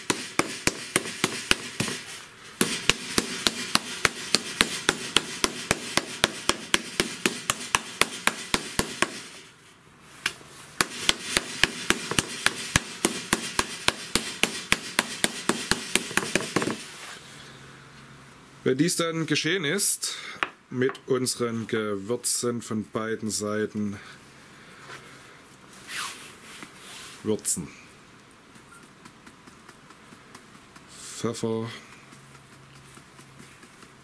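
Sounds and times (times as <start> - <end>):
meat mallet pounding on wooden board: 0.0 - 2.0, 2.6 - 9.3, 10.8 - 16.8.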